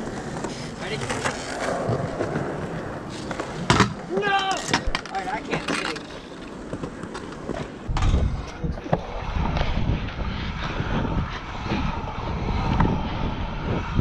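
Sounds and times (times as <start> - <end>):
wind buffeting microphone: 7.8 - 14.0.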